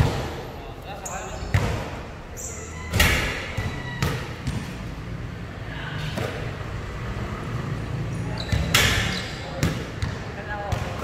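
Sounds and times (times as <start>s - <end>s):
basketball striking hoop: 2.9s - 4.7s
basketball bouncing on concrete: 3.5s - 4.8s, 9.5s - 11.0s.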